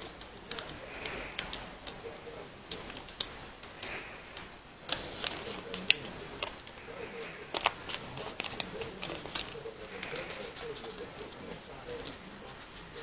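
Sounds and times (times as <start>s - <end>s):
light clicks and ticks: 0.0s - 2.0s
faint background hiss: 0.0s - 13.0s.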